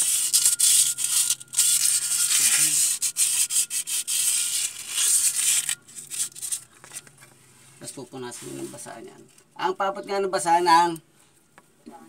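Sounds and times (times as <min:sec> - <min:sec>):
sandpaper scraping metal: 0:00.0 - 0:06.6.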